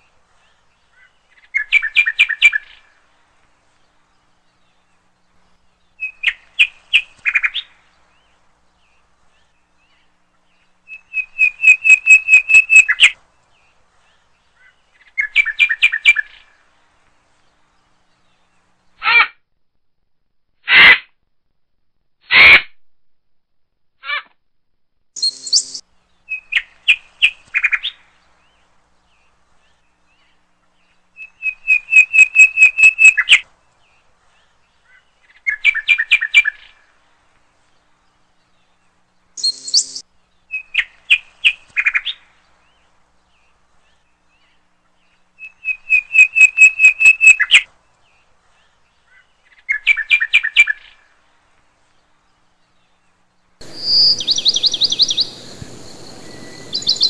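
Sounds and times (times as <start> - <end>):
rapid high-pitched chirping: 25.2 - 25.8, 39.4 - 40.0, 53.6 - 57.0
noisy whistle-like call: 45.6 - 47.6, 53.7 - 57.0.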